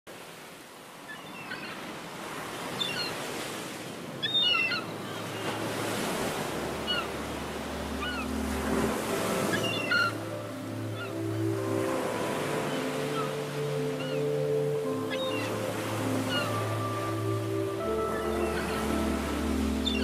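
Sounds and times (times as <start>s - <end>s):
ocean surf on beach: 0.1s - 20.0s
bird calls: 4.2s - 20.0s
low steady drone: 6.5s - 20.0s.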